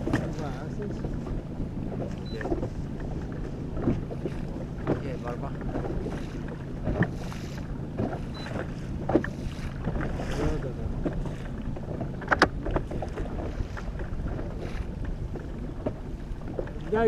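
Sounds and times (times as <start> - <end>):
outboard motor running: 0.0 - 17.0
water noise: 0.0 - 17.0
wind: 0.0 - 17.0.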